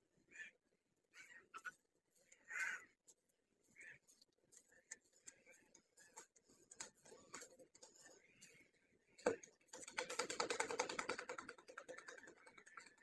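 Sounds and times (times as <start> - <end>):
faint clicks: 4.2 - 8.6.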